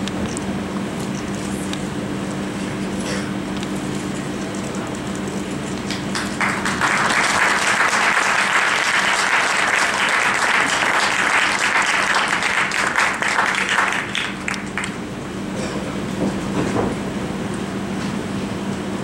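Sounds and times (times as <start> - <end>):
audience clapping: 5.8 - 15.0.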